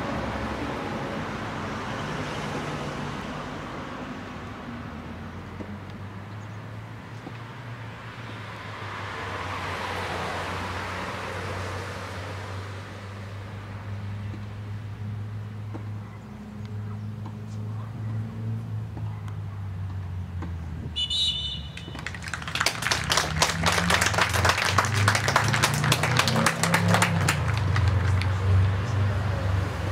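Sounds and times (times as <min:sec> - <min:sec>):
referee's whistle blast: 0:21.0 - 0:22.0
spectators applauding: 0:21.7 - 0:28.5.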